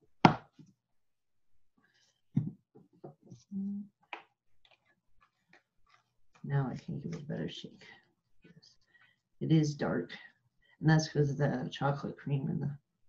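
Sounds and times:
plastic bottle clicks and knocks: 0.2s - 0.6s.

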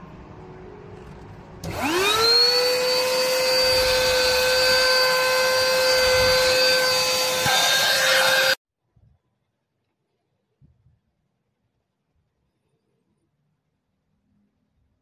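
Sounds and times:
vacuum cleaner motor whine: 1.6s - 8.6s.

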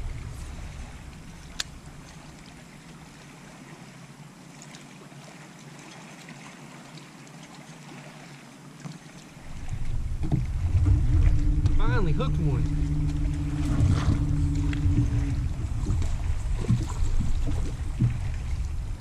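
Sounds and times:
low rumble: 0.0s - 3.1s, 9.4s - 19.0s
water lapping against boat hull: 0.0s - 19.0s.

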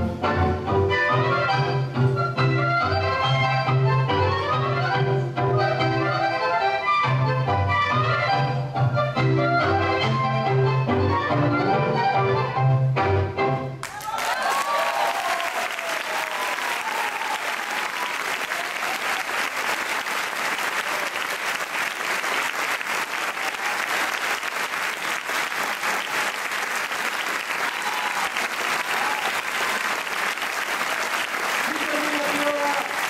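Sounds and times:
voices cheering: 13.8s - 21.6s, 25.4s - 33.0s
audience applauding: 13.8s - 33.0s.

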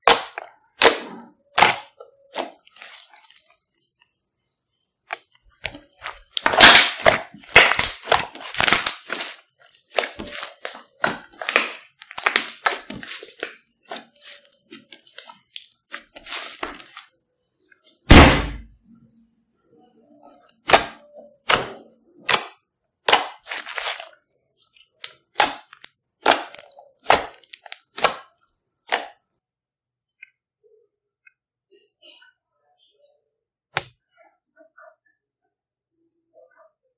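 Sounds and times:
slime crackling and popping: 5.6s - 17.1s, 22.3s - 24.1s.

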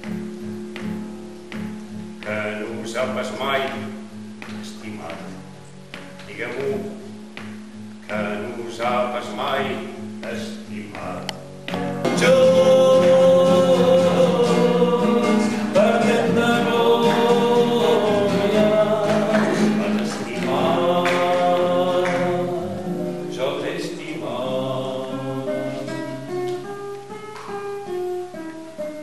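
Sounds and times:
plucked acoustic guitar: 0.0s - 29.0s
man singing long held notes: 12.1s - 26.1s.

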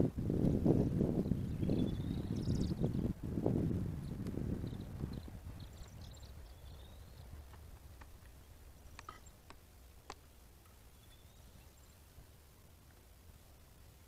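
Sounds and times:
faint sharp clicks: 7.5s - 10.8s.

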